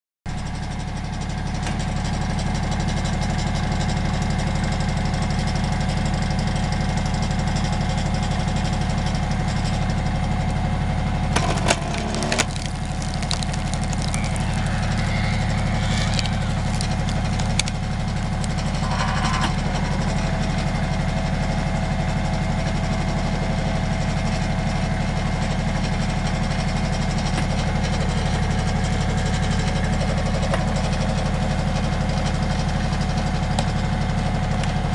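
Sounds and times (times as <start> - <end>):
tractor engine running: 0.3 - 34.9
log splitting cracks: 11.3 - 18.6.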